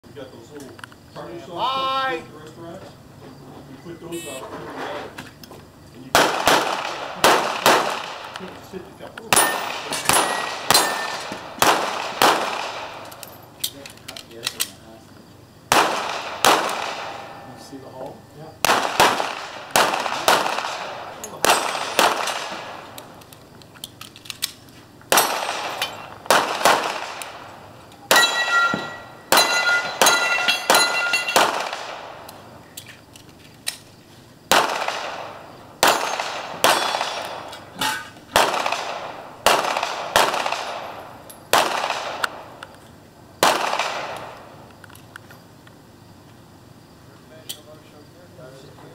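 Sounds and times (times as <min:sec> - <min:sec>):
handgun shots: 0:06.2 - 0:08.5, 0:09.3 - 0:13.3, 0:15.7 - 0:17.5, 0:18.6 - 0:23.3, 0:24.3 - 0:27.4, 0:28.1 - 0:32.4, 0:34.5 - 0:42.4, 0:43.4 - 0:44.4
steel plates ringing: 0:09.3 - 0:11.3, 0:28.0 - 0:31.5.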